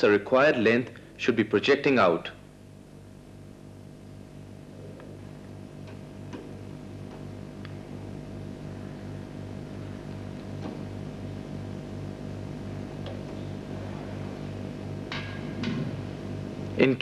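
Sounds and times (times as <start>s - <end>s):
pulsing machine hum: 0.0s - 17.0s.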